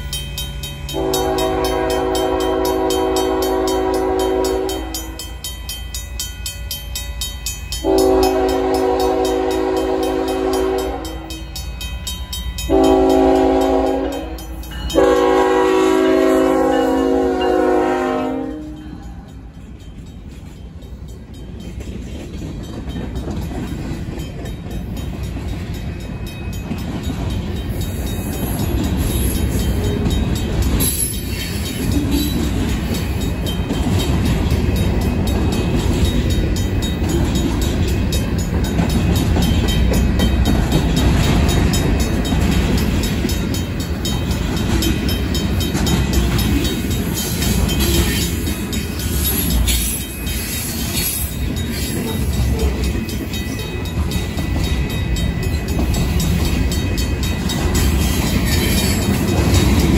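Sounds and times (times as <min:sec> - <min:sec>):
crossing bell ringing: 0:00.0 - 0:59.9
train wheels rumbling on rails: 0:00.0 - 0:59.9
locomotive horn blasts: 0:00.9 - 0:05.3, 0:07.8 - 0:11.4, 0:12.7 - 0:19.0.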